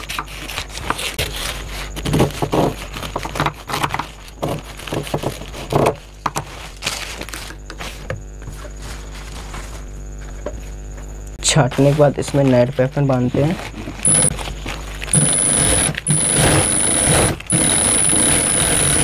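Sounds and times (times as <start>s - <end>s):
low hum with high tone: 6.1s - 19.0s.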